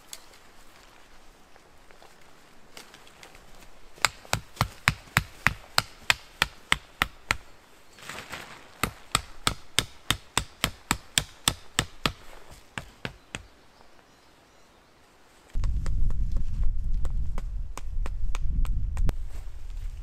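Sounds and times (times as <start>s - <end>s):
hammer driving stake into ground: 4.0s - 7.5s, 8.8s - 13.5s.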